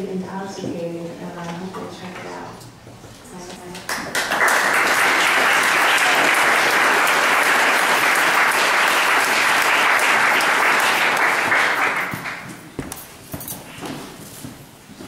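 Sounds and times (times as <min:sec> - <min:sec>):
audience applauding: 0:03.9 - 0:12.6.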